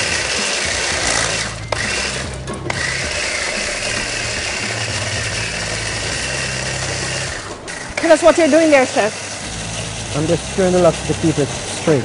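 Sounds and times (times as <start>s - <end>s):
electric food chopper grinding: 0.0s - 12.0s.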